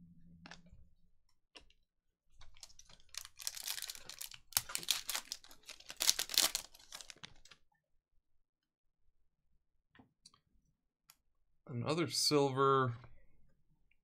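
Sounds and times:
foil pack crinkling: 2.4 - 7.6.

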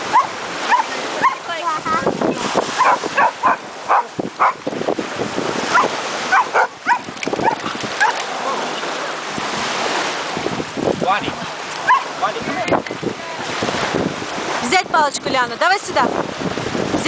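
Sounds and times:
dogs barking: 0.0 - 1.5, 2.8 - 4.6, 5.7 - 8.8, 11.8 - 12.2.

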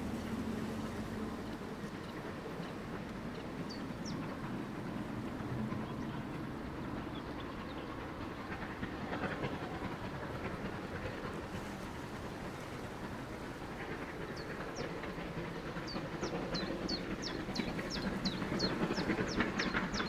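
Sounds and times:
distant steam locomotive rumble: 0.0 - 20.0
rail clatter: 0.0 - 20.0.

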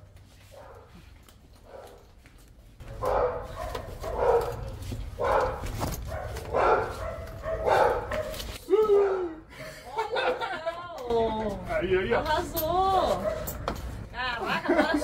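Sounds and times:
dog barking: 1.7 - 2.0, 2.9 - 9.4, 13.2 - 13.6.

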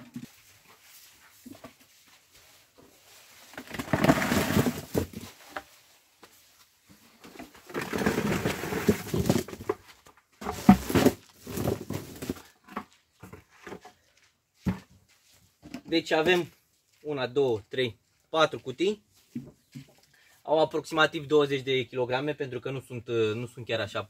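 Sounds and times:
cucumbers and bucket clattering: 0.0 - 2.0, 3.4 - 5.8, 7.0 - 14.0
cucumbers tumbling into a box: 3.5 - 5.5, 7.4 - 13.7.

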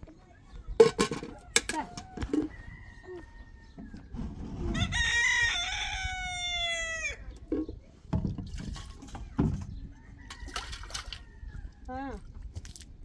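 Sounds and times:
rooster crowing: 2.2 - 4.0, 4.7 - 7.2.

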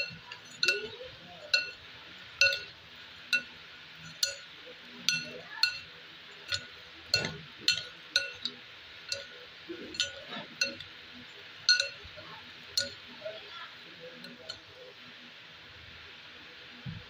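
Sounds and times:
plastic spoons clinking on metal bowl: 0.0 - 1.8, 2.4 - 10.9, 11.6 - 12.2, 12.8 - 13.0.

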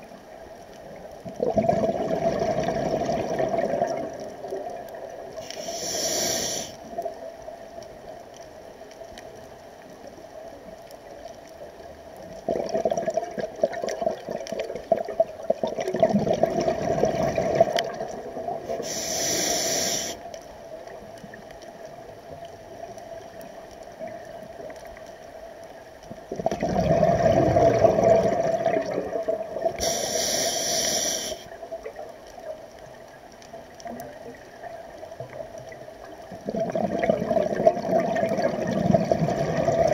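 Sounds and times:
exhaled bubbles rumbling: 0.7 - 5.5, 12.2 - 19.0, 26.0 - 29.8, 31.6 - 39.9
regulator hissing inhalations: 5.4 - 6.8, 18.7 - 20.3, 29.8 - 31.5.

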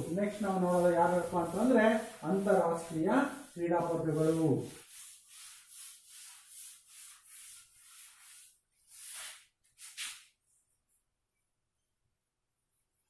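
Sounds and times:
chalk wiped off blackboard: 0.0 - 10.4.

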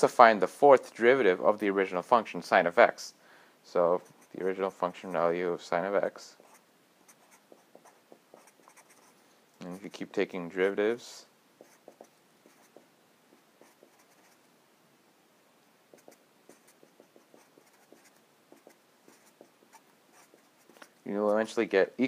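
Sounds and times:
marker scratching on paper: 6.4 - 10.0, 11.6 - 14.4, 15.9 - 21.5.

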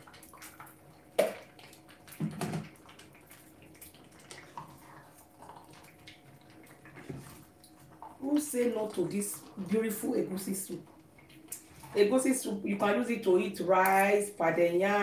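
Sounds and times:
spatula stirring thick soup: 0.0 - 9.6
faint steady hum: 0.0 - 15.0.

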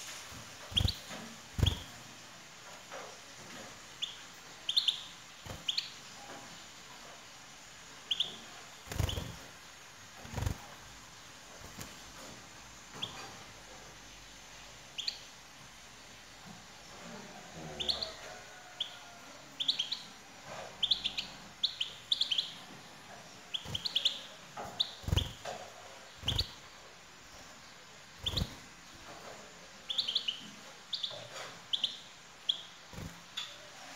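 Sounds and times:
goldfinch chirping: 0.6 - 2.0, 4.0 - 6.1, 8.1 - 9.5, 14.9 - 15.3, 19.6 - 20.1, 20.8 - 22.7, 23.5 - 25.6, 26.2 - 26.7, 28.2 - 28.7, 29.8 - 33.7.

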